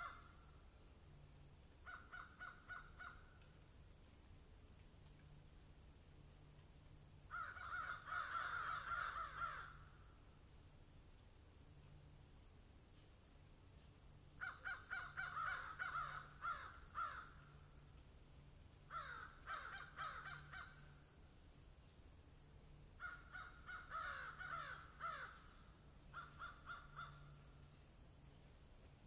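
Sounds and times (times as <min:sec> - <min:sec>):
rapid repeated animal calls: 0:01.8 - 0:03.3, 0:26.1 - 0:27.4.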